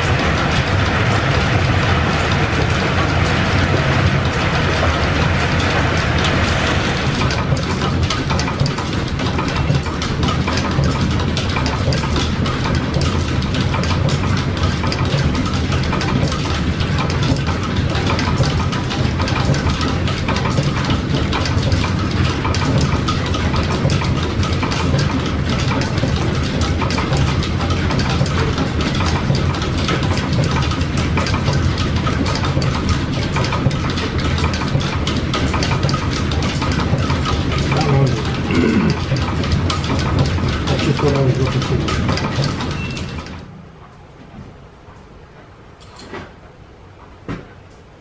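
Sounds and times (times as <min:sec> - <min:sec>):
line shafting and belts droning: 0:00.0 - 0:10.6
fast dense ticking: 0:00.0 - 0:43.4.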